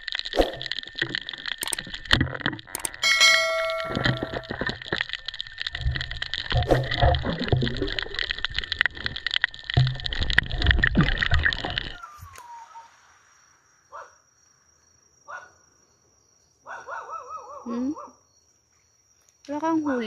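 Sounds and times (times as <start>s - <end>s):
underwater rushing bubbling water: 0.0s - 2.9s, 4.3s - 12.0s
underwater clicks and knocks: 0.0s - 12.0s.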